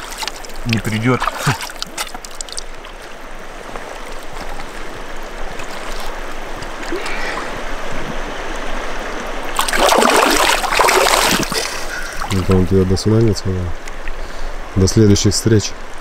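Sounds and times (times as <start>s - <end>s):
splashing in water: 0.0s - 8.3s, 9.4s - 12.6s
river running over stones: 0.0s - 14.2s.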